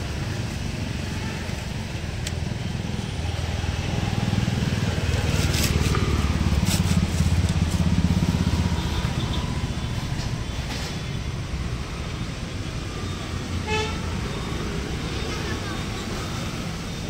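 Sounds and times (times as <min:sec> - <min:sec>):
road traffic rumble: 0:00.0 - 0:17.0
motor vehicle passing close: 0:03.7 - 0:08.9.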